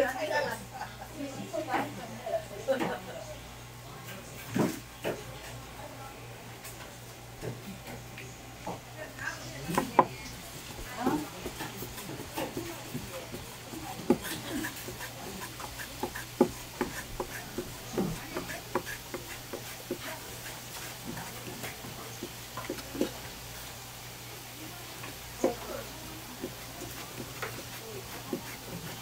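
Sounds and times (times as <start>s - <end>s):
knife chopping on wooden board: 9.7s - 10.1s, 10.8s - 23.2s, 25.4s - 25.7s, 26.4s - 29.0s.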